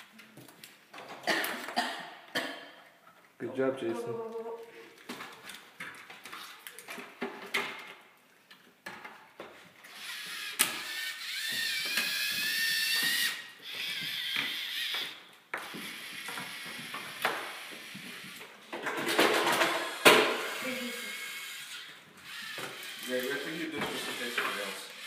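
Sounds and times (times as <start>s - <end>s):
electric motors and gears whining: 9.9s - 18.6s, 19.5s - 25.0s.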